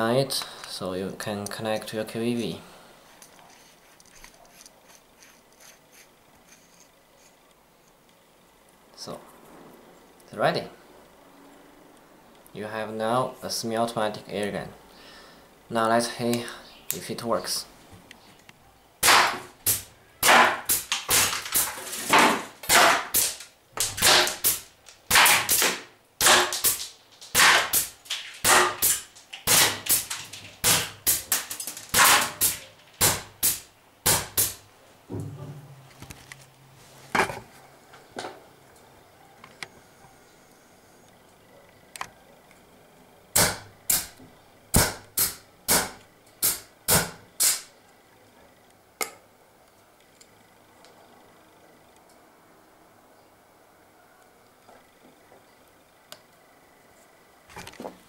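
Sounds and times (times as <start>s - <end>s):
airgun firing sharp pops: 19.0s - 21.7s, 22.6s - 34.6s, 43.4s - 44.1s, 44.7s - 47.7s.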